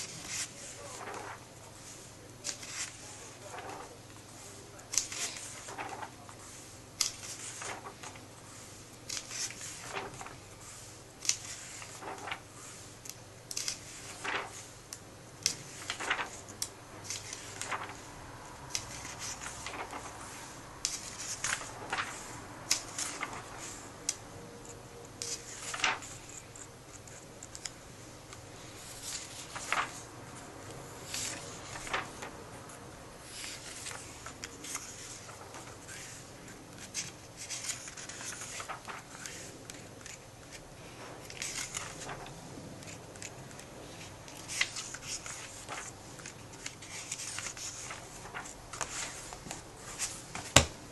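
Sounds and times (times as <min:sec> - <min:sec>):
paper pages swishing: 0:00.0 - 0:24.2, 0:25.2 - 0:27.8, 0:28.6 - 0:32.4, 0:33.2 - 0:50.9.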